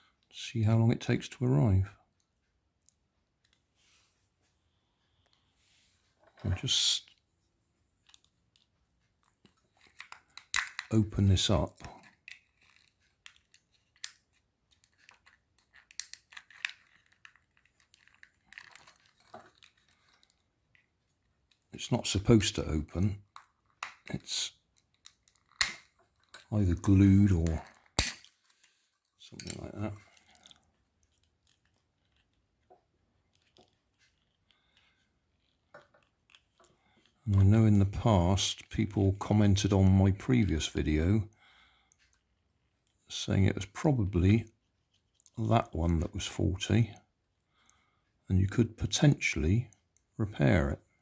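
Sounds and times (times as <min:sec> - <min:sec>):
faint clicks and scrapes: 0:02.2 - 0:11.0, 0:11.7 - 0:21.9, 0:22.9 - 0:37.6, 0:41.8 - 0:43.2, 0:44.5 - 0:45.8.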